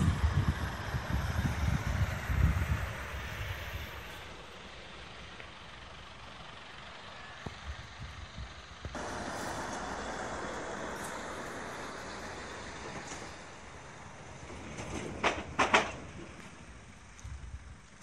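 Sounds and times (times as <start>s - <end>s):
truck air hiss: 0.0s - 7.4s, 8.9s - 14.4s
truck engine rumble: 0.0s - 18.0s.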